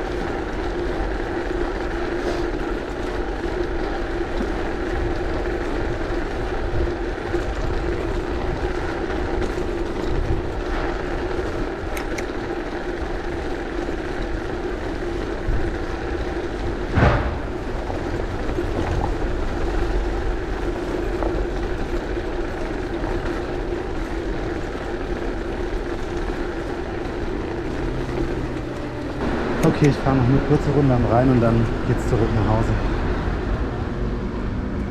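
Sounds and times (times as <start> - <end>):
bicycle rolling over cobblestones: 0.0 - 34.9
sharp knock: 17.0 - 17.6.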